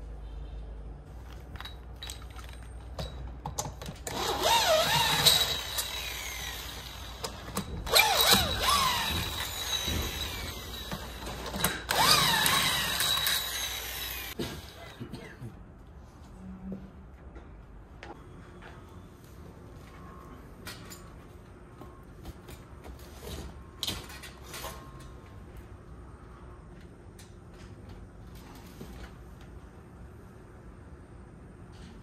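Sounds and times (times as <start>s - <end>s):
electric drill motor: 4.1s - 14.4s.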